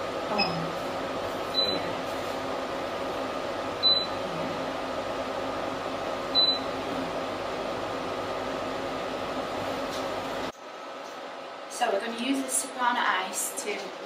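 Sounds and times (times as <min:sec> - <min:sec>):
steady fan hum: 0:00.0 - 0:14.0.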